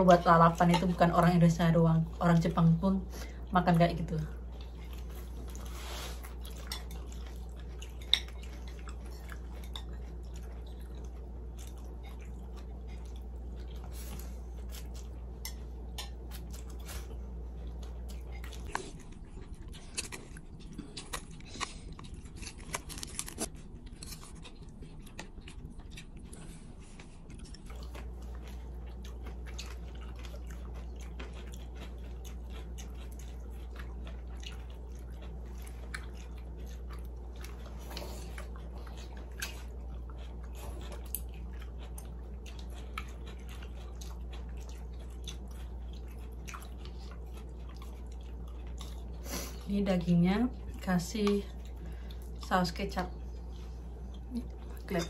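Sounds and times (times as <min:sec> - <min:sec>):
people chewing: 0:00.0 - 0:55.0
steady low hum: 0:00.0 - 0:55.0.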